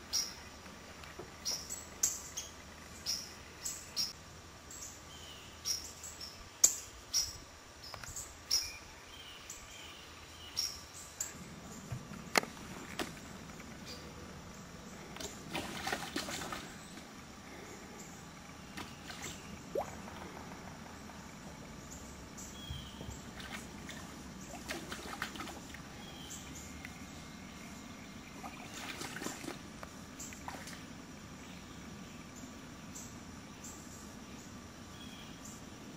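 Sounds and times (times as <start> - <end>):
bird splashing in shallow water: 15.0 - 17.2, 18.6 - 20.8, 23.0 - 26.0, 28.4 - 30.9.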